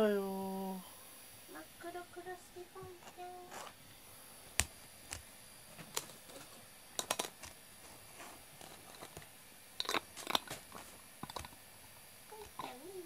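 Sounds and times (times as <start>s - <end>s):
glass jar clicking on wooden floor: 9.8s - 10.6s.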